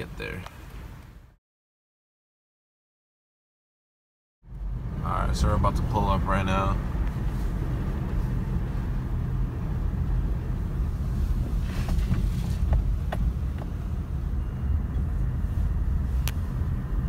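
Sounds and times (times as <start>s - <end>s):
car engine and road rumble: 0.0s - 1.4s, 4.4s - 17.0s.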